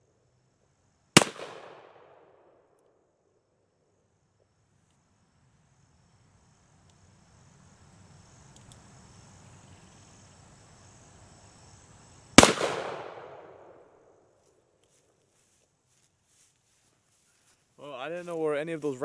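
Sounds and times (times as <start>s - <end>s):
revolver gunshot echoing: 1.2s - 2.2s, 12.4s - 13.8s.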